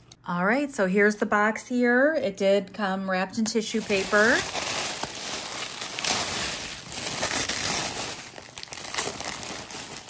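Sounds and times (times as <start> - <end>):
plastic bag crinkling: 3.7 - 10.0
tissue paper rustling: 3.7 - 10.0.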